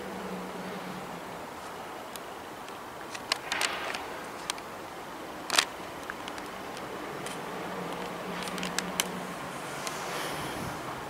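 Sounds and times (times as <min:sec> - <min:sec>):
steady background hush: 0:00.0 - 0:11.0
sharp clicks: 0:02.1 - 0:04.7, 0:05.4 - 0:09.2.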